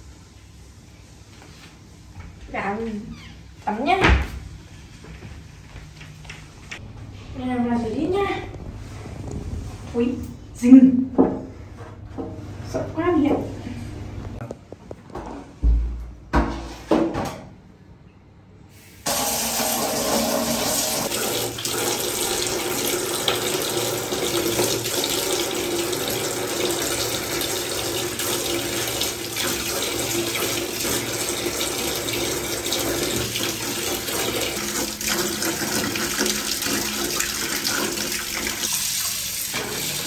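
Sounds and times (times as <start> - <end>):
tap water splashing into basin: 19.1 - 40.0.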